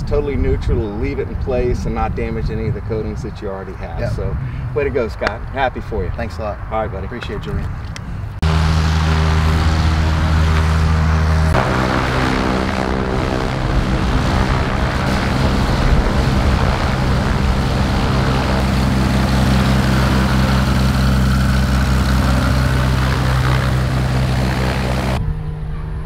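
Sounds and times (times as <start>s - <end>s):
propeller plane engine taxiing: 7.6s - 26.0s.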